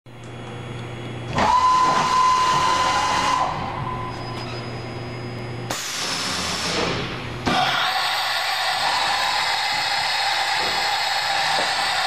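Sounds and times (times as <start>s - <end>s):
machining center high whine: 0.1s - 12.0s.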